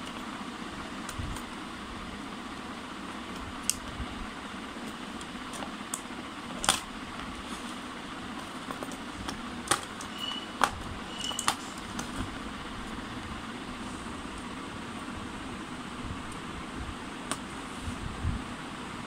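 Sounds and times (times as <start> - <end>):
plastic parts clicking and tapping: 8.4 - 12.2
short high squeaks: 10.0 - 11.5.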